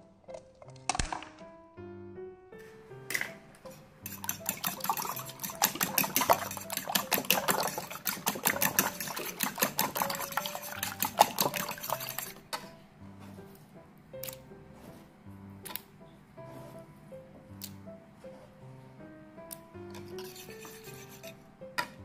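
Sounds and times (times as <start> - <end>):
fork beating eggs in bowl: 3.7 - 12.7, 19.9 - 21.4.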